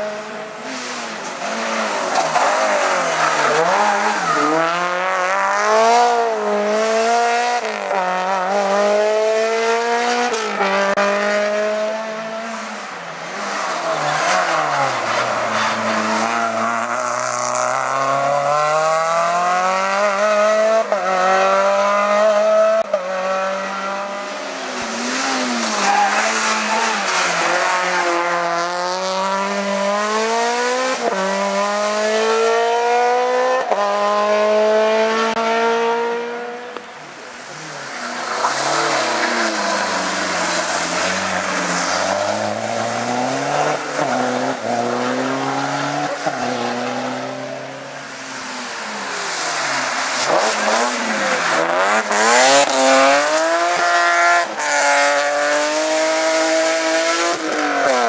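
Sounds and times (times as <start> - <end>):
rally car engine revving: 0.0 - 58.0.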